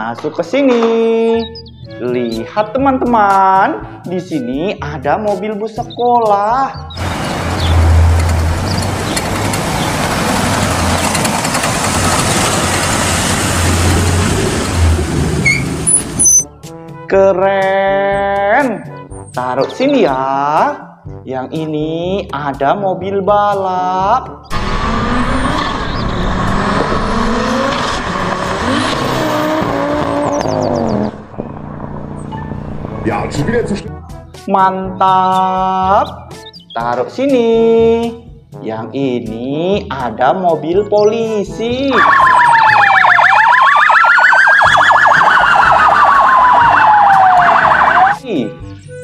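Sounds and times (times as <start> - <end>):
car accelerating past: 7.0 - 16.4, 24.5 - 33.8
police siren yelp and wail: 41.9 - 48.2.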